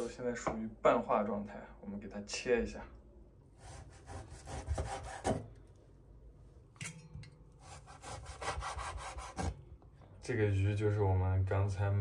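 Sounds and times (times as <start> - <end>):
knife sawing through meat: 3.6 - 5.4, 7.6 - 9.6.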